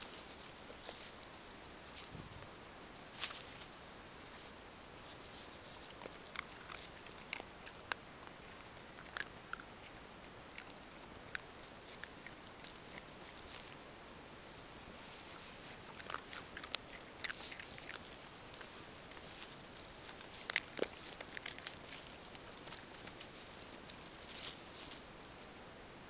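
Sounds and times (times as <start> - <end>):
rustling through grass: 0.0 - 7.7, 11.5 - 25.5
dogs crunching dry kibble: 4.3 - 14.0, 14.7 - 25.3.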